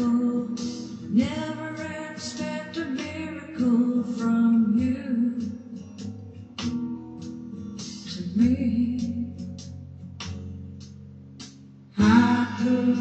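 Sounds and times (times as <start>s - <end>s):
woman singing: 0.0s - 6.0s, 7.9s - 9.6s, 12.0s - 13.0s
plucked guitar: 0.0s - 13.0s.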